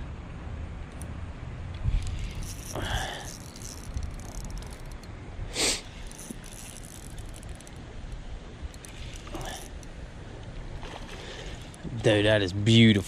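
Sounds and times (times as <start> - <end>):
fishing reel cranking: 1.8 - 5.1, 5.8 - 7.8, 8.7 - 9.9, 10.8 - 11.8.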